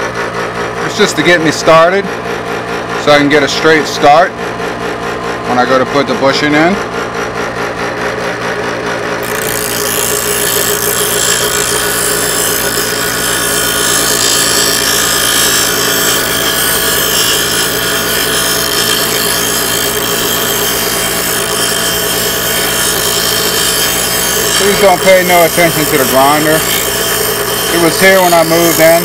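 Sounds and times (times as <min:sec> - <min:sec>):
bench grinder motor hum: 0:00.0 - 0:29.0
metal grinding hiss: 0:09.2 - 0:29.0.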